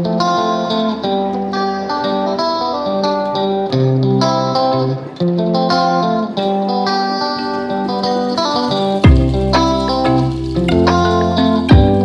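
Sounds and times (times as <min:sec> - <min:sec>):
plucked melody: 0:00.0 - 0:12.0
held bass notes: 0:07.4 - 0:12.0.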